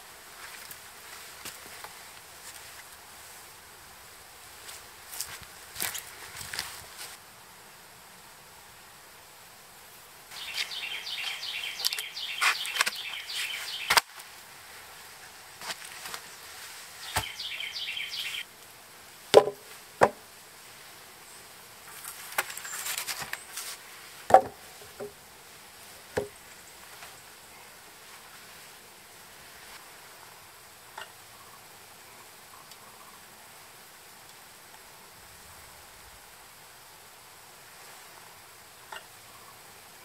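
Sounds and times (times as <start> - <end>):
wooden poles knocking: 19.3 - 20.2, 24.3 - 25.2.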